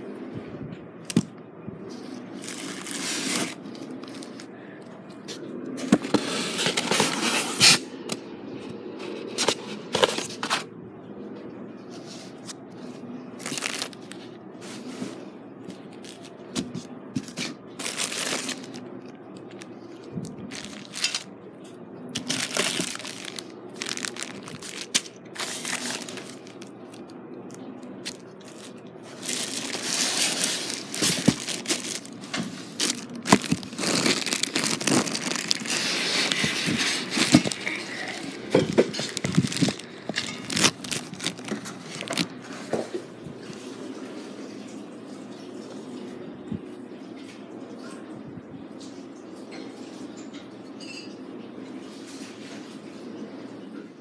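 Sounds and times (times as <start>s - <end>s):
plastic wrapping crinkling: 1.9s - 4.5s, 13.4s - 14.9s, 15.7s - 21.4s, 22.1s - 43.0s.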